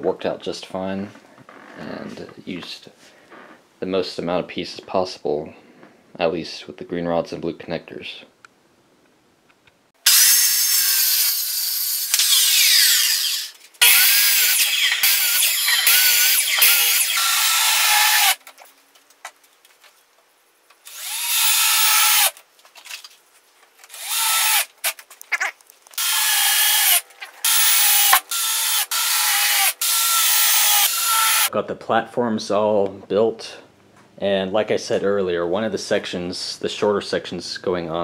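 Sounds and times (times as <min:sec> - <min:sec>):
circular saw cutting wood: 0:10.1 - 0:18.4, 0:20.9 - 0:22.4, 0:26.0 - 0:31.5
cordless drill driving screws: 0:10.1 - 0:18.4, 0:20.9 - 0:22.4, 0:23.9 - 0:25.0, 0:26.0 - 0:31.5.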